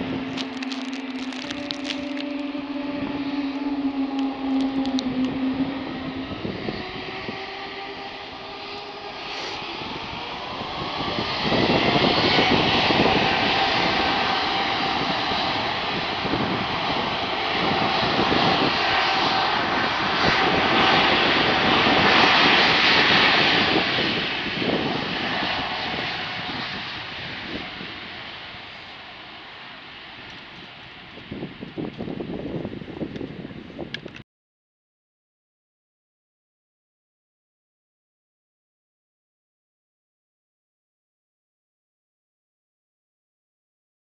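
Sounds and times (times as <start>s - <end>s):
jet engines spooling up: 0.0s - 33.0s.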